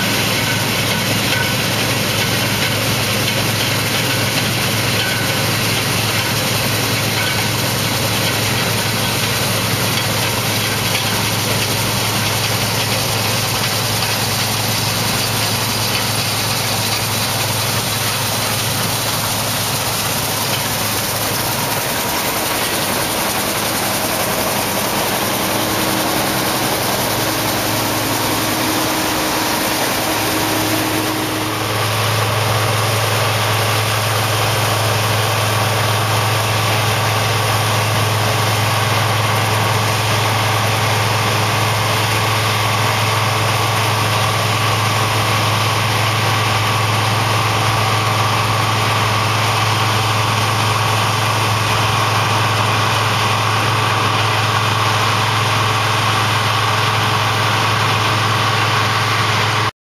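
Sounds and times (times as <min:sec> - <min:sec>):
combine harvester engine drone: 0:00.0 - 0:59.7
threshing noise: 0:00.1 - 0:35.8.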